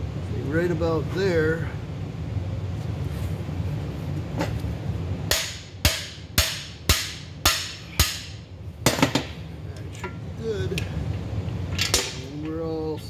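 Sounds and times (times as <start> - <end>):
hammer striking metal bar: 5.3 - 9.3.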